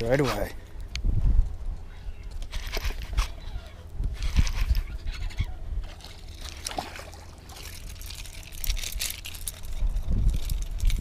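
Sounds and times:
water splashing and dripping: 0:05.9 - 0:09.6.

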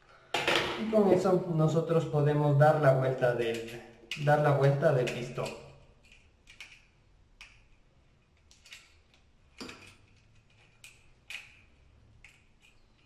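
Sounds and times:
metallic clicks and taps of lock: 0:05.0 - 0:07.8.

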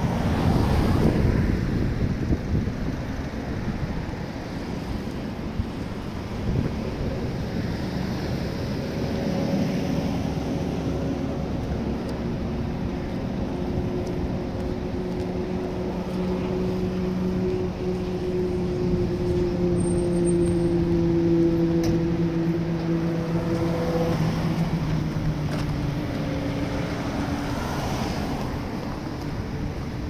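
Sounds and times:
engine humming: 0:01.8 - 0:30.0.

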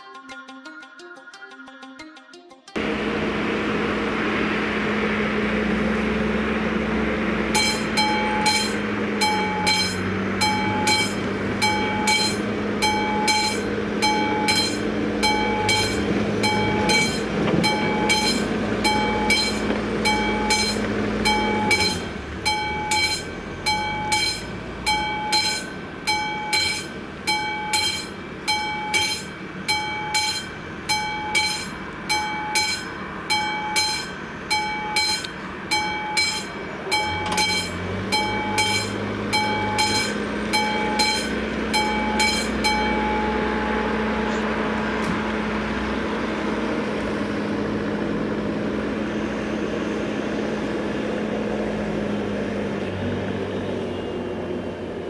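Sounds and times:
low engine hum: 0:02.8 - 0:55.0
level crossing warning bell: 0:07.5 - 0:45.0.

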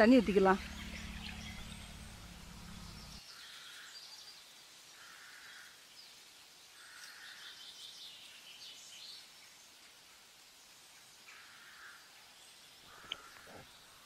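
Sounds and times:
high bird chirps: 0:00.0 - 0:03.2.

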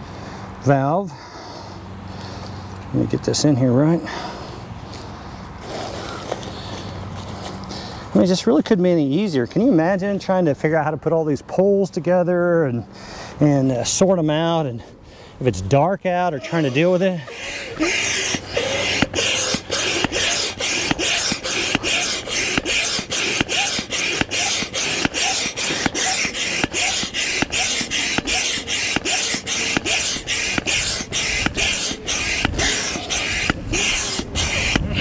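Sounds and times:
air pump hissing: 0:16.4 - 0:35.0.

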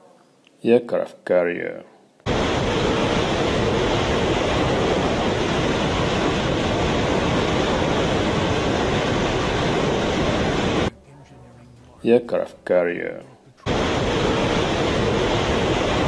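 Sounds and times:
steady rushing noise: 0:02.2 - 0:10.9, 0:13.6 - 0:16.0
low rumble: 0:02.3 - 0:11.8, 0:13.6 - 0:16.0.

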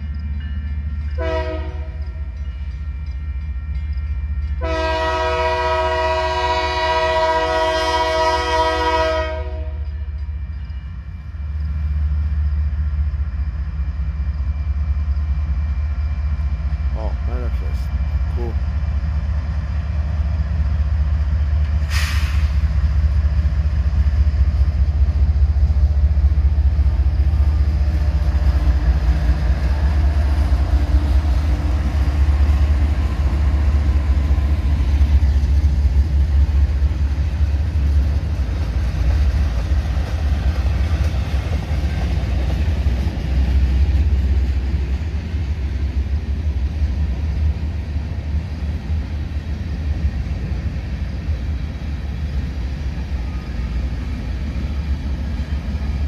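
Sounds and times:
locomotive engine rumble: 0:00.0 - 0:56.0
freight cars rolling on rails: 0:13.2 - 0:56.0
short hiss: 0:21.8 - 0:22.7.

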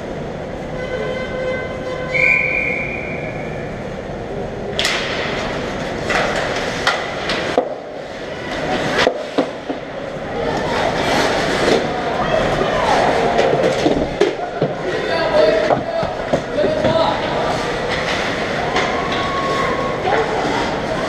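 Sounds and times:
droning hum: 0:00.0 - 0:21.0
hockey sticks and puck clacking: 0:04.8 - 0:21.0
ice skates scraping: 0:05.4 - 0:21.0.

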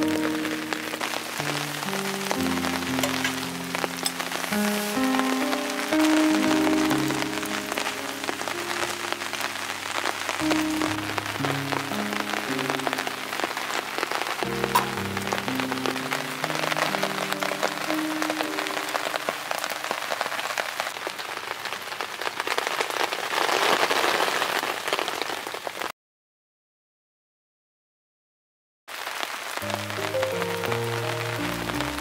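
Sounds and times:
soft slow background music: 0:00.0 - 0:19.6, 0:29.6 - 0:32.0
rain pattering: 0:00.0 - 0:25.9, 0:28.9 - 0:32.0.

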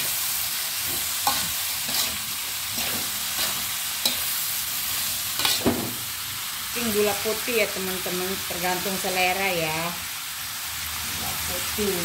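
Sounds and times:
vegetables sizzling in a wok: 0:00.0 - 0:12.0
metal ladle scraping a pan: 0:00.9 - 0:05.9.

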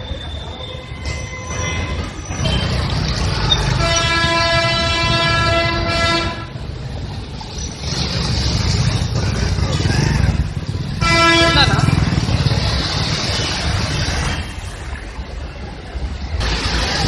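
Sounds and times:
street traffic rumbling: 0:00.0 - 0:17.0
car horn long note: 0:03.8 - 0:06.5, 0:11.0 - 0:11.7.

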